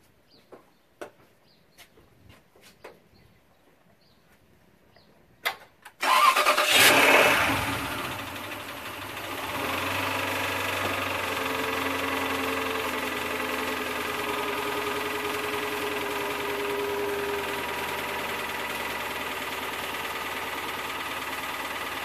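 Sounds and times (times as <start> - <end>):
engine cranking and idling: 5.9 - 22.0.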